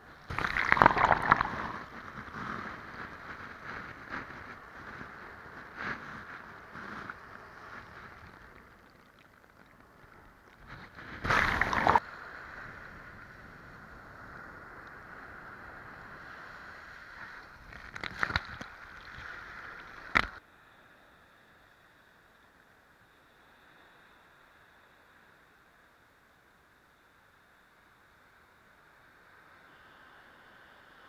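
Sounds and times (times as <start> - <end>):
waves breaking on beach: 0.2 - 9.3, 10.1 - 14.4
water splashing: 0.3 - 2.0, 7.8 - 12.0.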